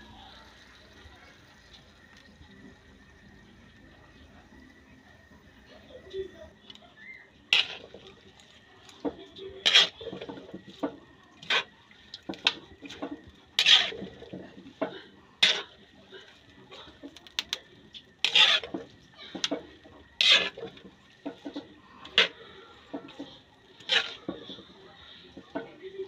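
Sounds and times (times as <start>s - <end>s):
metal utensil scraping a wok: 7.4s - 25.7s.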